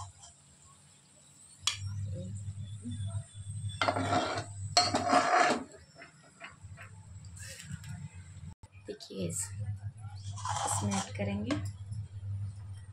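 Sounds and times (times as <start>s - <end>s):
metal spatula scraping a pan: 3.5s - 7.0s, 10.2s - 11.7s.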